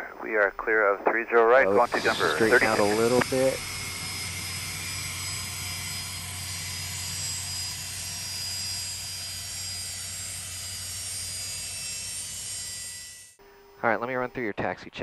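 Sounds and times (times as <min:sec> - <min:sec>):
jet engines taxiing: 0:01.6 - 0:12.6.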